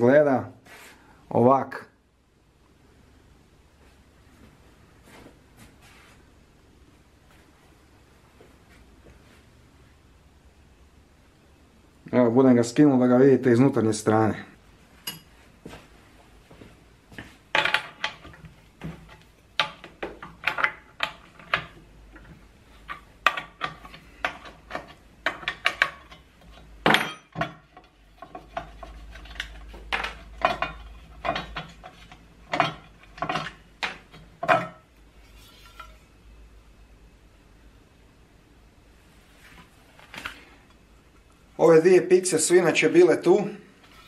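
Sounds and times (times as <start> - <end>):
metallic clinks and scrapes: 34.4 - 36.2.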